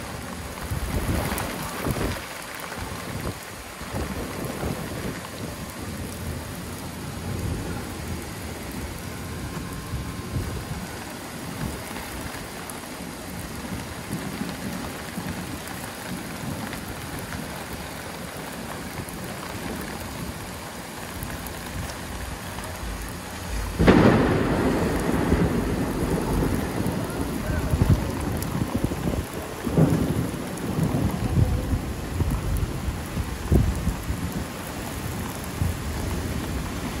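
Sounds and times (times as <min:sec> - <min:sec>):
heavy rain pouring: 0:00.0 - 0:37.0
rolling thunderclap: 0:22.1 - 0:37.0.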